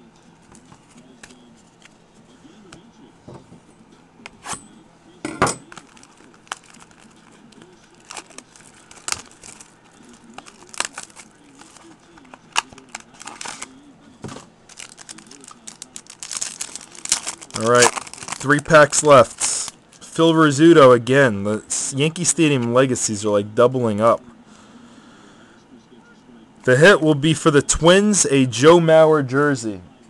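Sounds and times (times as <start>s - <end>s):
cards being handled: 0.4s - 2.0s, 5.7s - 19.8s
foil wrapper crinkling and tearing: 5.7s - 13.8s, 14.7s - 19.8s.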